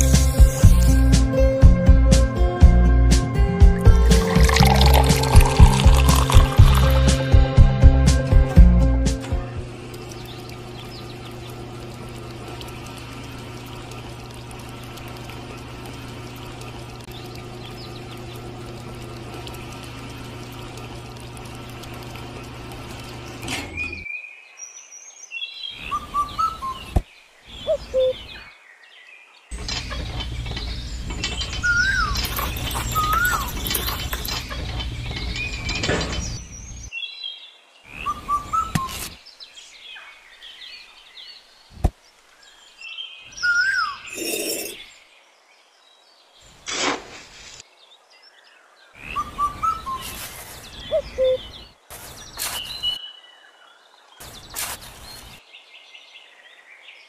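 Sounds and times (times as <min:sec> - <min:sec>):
bird chirps: 0:23.8 - 0:29.0, 0:29.9 - 0:40.2, 0:48.9 - 0:53.3.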